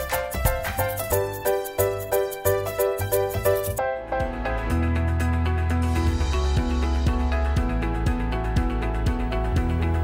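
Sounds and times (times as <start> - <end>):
upbeat theme music: 0.0 - 10.0
low bass: 4.0 - 10.0.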